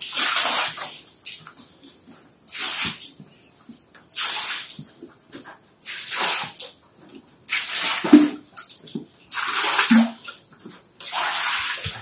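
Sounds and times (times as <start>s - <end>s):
water splashing onto concrete: 7.5s - 10.3s, 11.0s - 12.0s.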